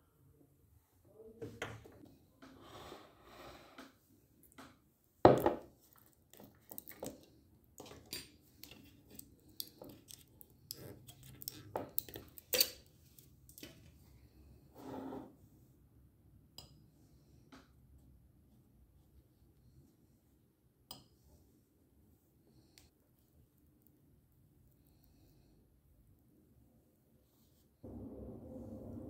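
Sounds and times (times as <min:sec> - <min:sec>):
jar opening clicks and scrapes: 0:07.8 - 0:13.7.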